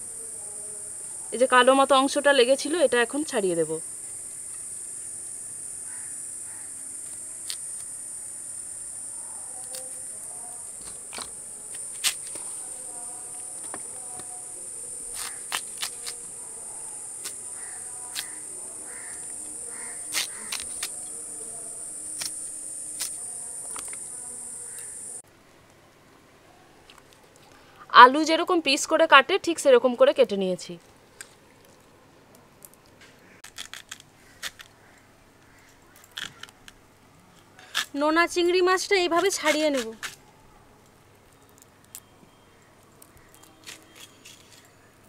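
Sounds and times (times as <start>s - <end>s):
high buzz of insects: 0.0s - 25.2s
knife scraping skin off yam: 15.1s - 16.2s, 20.1s - 21.0s, 43.4s - 44.7s.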